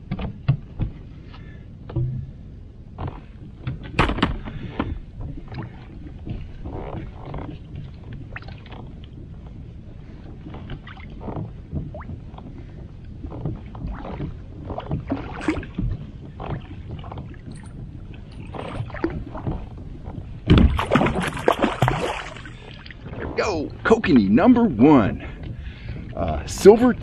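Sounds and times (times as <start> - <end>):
water sloshing: 0.0 - 27.0
knocks on kayak: 4.0 - 4.4, 20.4 - 22.2
fish splashing at surface: 20.7 - 22.7.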